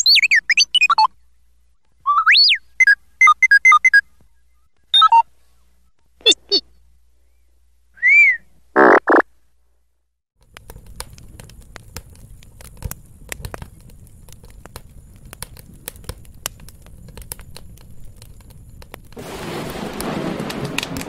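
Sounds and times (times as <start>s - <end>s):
fire crackling: 10.4s - 21.0s.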